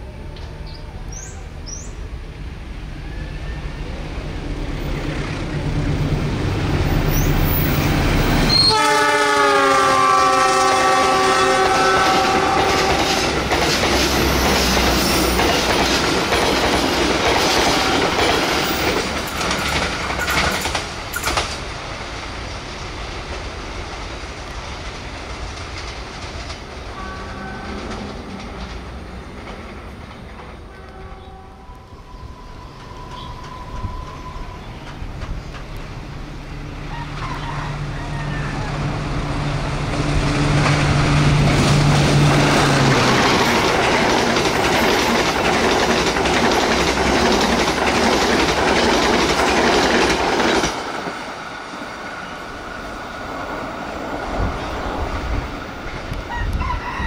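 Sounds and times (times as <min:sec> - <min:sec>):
diesel locomotive engine rumble: 0:00.0 - 0:56.9
train air horn: 0:08.4 - 0:13.5, 0:17.6 - 0:18.3, 0:26.9 - 0:28.7, 0:30.6 - 0:34.8
wheels clattering over rail joints: 0:12.0 - 0:21.7, 0:41.5 - 0:51.3.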